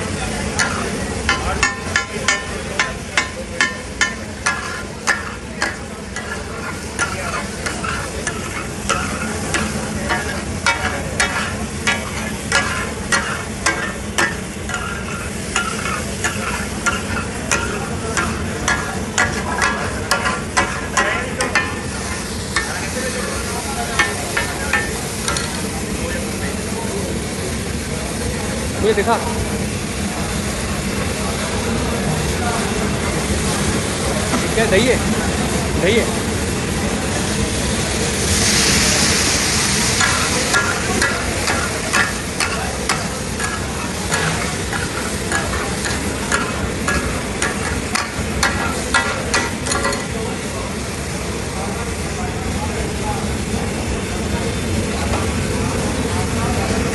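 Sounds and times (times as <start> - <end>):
frying sizzle: 0.0 - 56.9
spatulas clacking on griddle: 0.5 - 26.1, 38.4 - 50.2.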